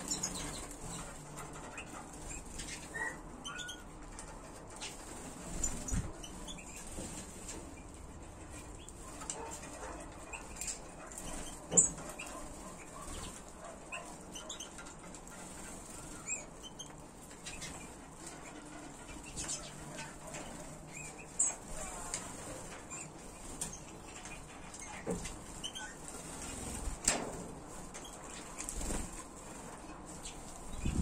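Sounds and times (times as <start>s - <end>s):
finches chirping: 0.0s - 26.9s, 27.7s - 31.0s
wing flutters: 0.0s - 31.0s.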